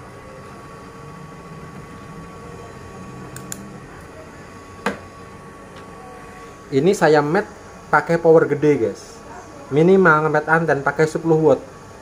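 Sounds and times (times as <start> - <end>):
cooling fan hum and hiss: 0.0 - 12.0
quick clicks: 3.4 - 3.7.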